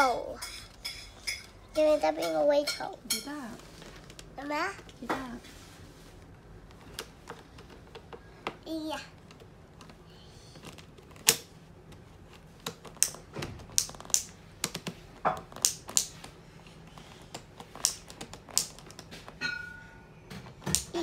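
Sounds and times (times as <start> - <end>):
plastic buckles clicking and clattering: 6.4 - 10.0, 10.6 - 16.3, 17.0 - 19.4.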